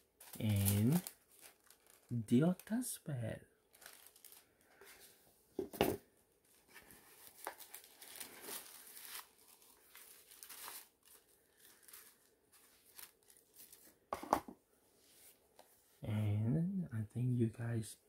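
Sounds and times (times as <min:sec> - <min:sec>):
tissue paper rustling: 0:00.0 - 0:02.8, 0:03.7 - 0:05.2, 0:06.4 - 0:14.1.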